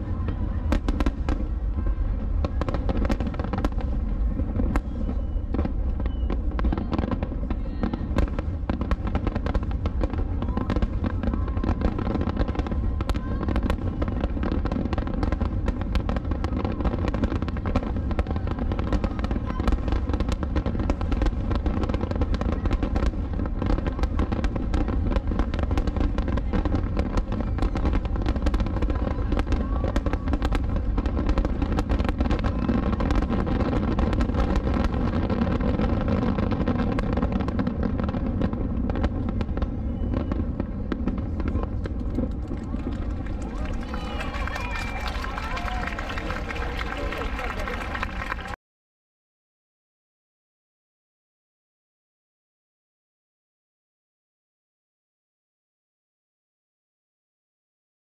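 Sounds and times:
fireworks bursting: 0.0 - 48.6.

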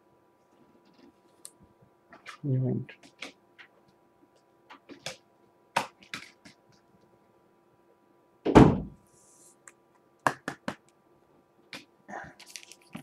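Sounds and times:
heavy thump on table: 8.5 - 9.0
foil packs crinkling: 12.4 - 13.0.

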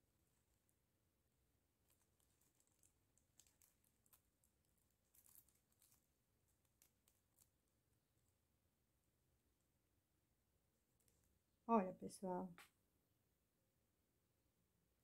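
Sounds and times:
faint clicks and crinkles of crochet: 1.8 - 8.4, 10.8 - 11.4.

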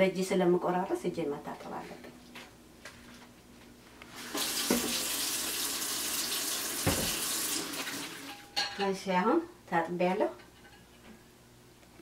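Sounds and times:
hands being rinsed: 4.2 - 8.3
tap running into steel sink: 4.4 - 5.1, 6.8 - 7.3.

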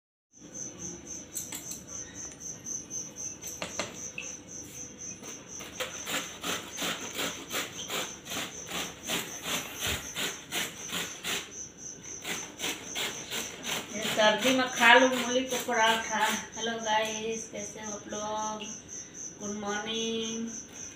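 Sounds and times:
high-pitched pulsing chirp: 0.4 - 6.1
radish grating on metal grater: 5.6 - 16.5.

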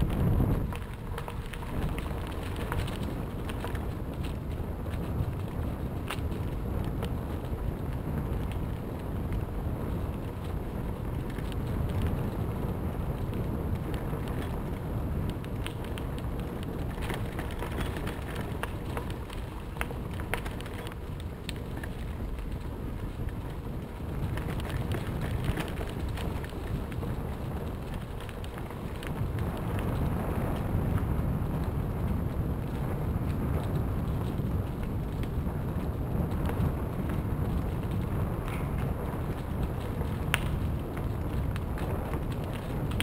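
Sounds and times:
bicycle tyres crackling over dry leaves: 0.0 - 43.0
wind rumble on microphone: 0.0 - 43.0.

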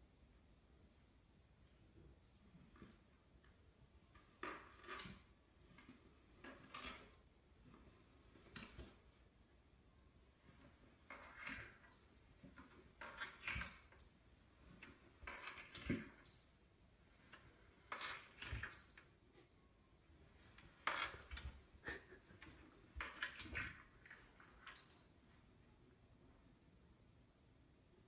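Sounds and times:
faint high clink: 20.8 - 21.7.

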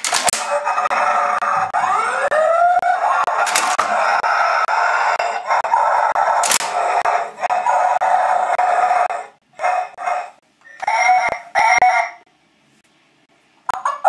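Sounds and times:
distorted toy electronic noise: 0.0 - 12.3
siren-like wail: 0.3 - 10.0, 10.7 - 12.2
sharp clicks: 3.2 - 5.3, 6.1 - 7.1.

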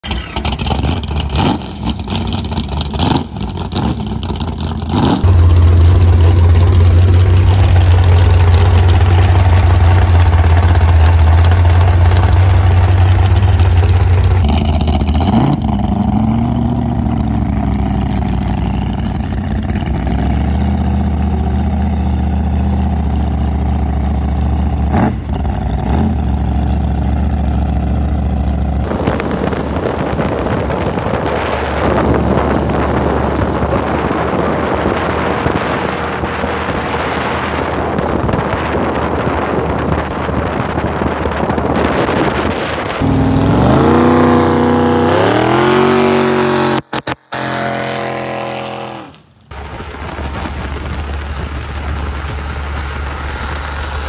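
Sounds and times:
boat engine running loud: 0.0 - 54.0.

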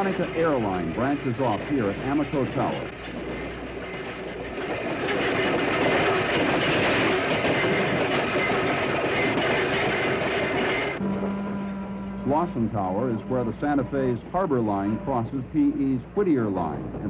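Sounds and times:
train wheels rumbling on rails: 0.0 - 17.0
faint steady whine: 7.1 - 17.0.

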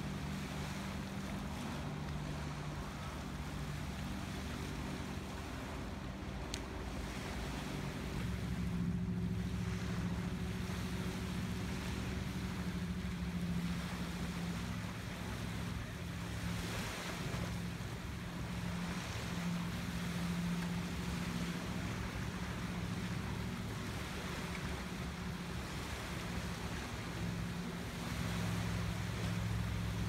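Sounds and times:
motorboat engine drone: 0.0 - 30.0
small waves lapping: 0.0 - 30.0
wind: 0.0 - 30.0.

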